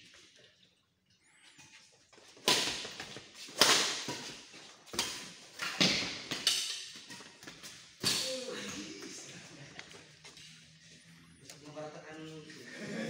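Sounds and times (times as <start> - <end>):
racket striking shuttlecock: 2.4 - 8.4.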